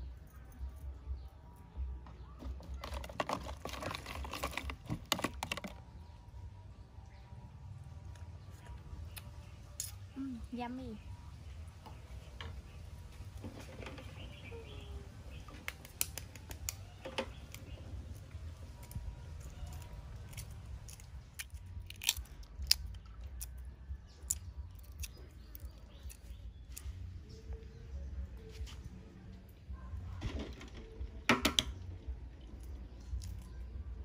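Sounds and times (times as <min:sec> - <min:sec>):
eggshells cracking: 0:18.9 - 0:27.0.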